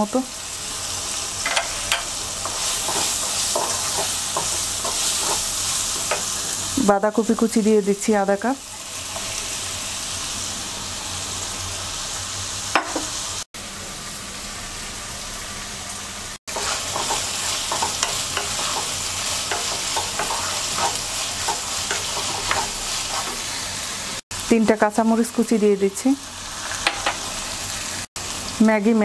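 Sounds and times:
food sizzling in oil: 0.0s - 29.0s
wooden spatula scraping pan: 16.5s - 23.4s.

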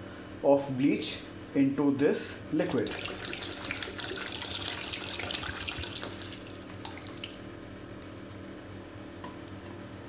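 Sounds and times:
liquid pouring into water: 2.6s - 7.6s
water splashing and bubbling: 2.6s - 7.6s.

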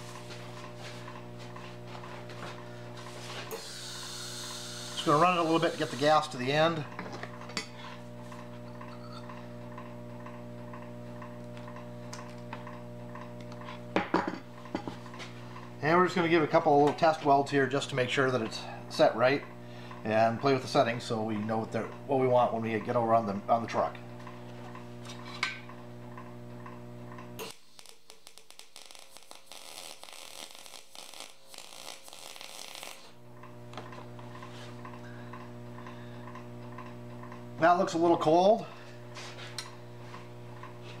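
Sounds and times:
welder electrical hum: 0.0s - 41.0s
welding arc crackling: 3.0s - 6.9s, 26.6s - 38.0s
pliers clattering on bench: 14.0s - 15.0s.

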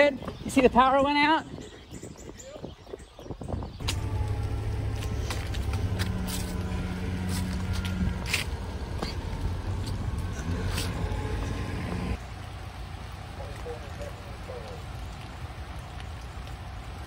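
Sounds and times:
car engine rumbling: 3.8s - 13.8s.

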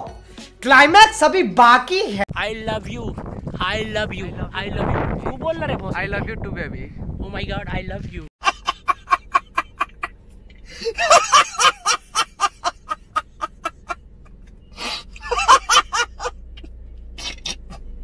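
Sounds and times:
man laughing hysterically: 8.4s - 10.1s, 10.7s - 16.4s.

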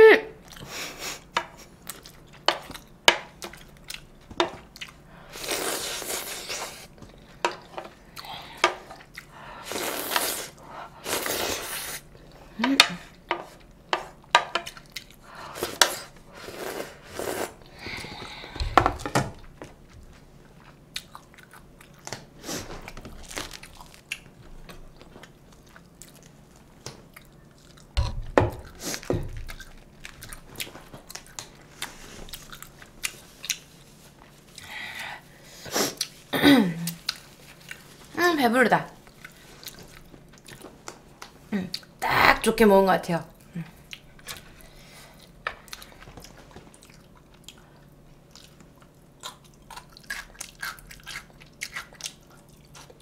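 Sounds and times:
chewing with smacks: 0.4s - 5.1s, 6.5s - 9.4s, 12.0s - 16.2s, 17.9s - 34.7s, 36.9s - 38.1s, 39.0s - 42.0s, 43.3s - 53.0s
slurping: 9.6s - 12.1s, 15.6s - 18.2s.

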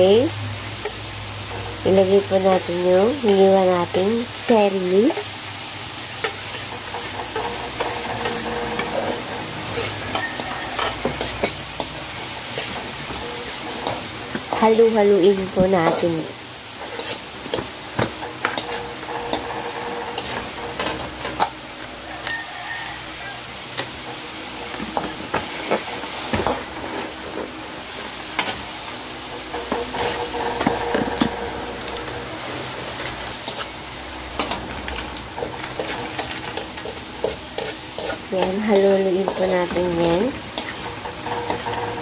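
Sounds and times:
vegetables sizzling in a wok: 0.0s - 42.0s
spatula scraping a pan: 6.2s - 14.6s, 15.3s - 21.5s, 29.3s - 33.8s, 35.4s - 42.0s.

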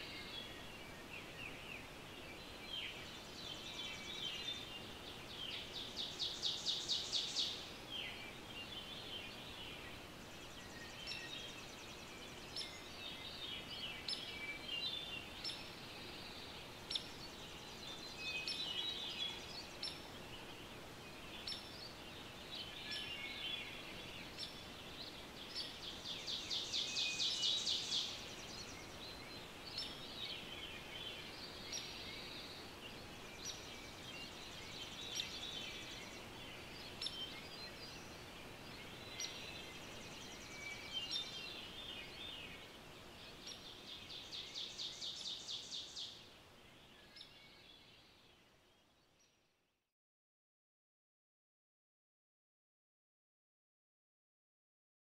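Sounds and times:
songbirds singing: 0.0s - 49.6s
steady outdoor hiss: 0.0s - 49.8s.

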